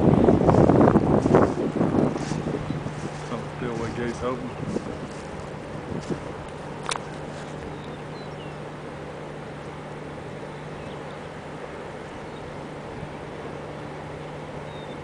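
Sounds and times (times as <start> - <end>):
flood water rushing: 0.0 - 15.0
low steady hum: 0.0 - 15.0
wind: 0.0 - 15.0
faint bird chirps: 7.7 - 8.6, 14.6 - 15.0.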